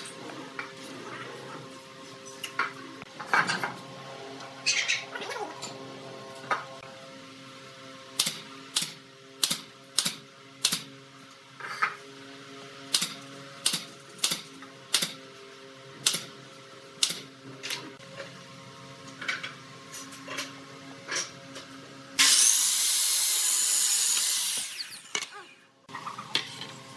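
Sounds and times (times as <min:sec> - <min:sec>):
nail gun firing into wood: 0:08.2 - 0:10.9.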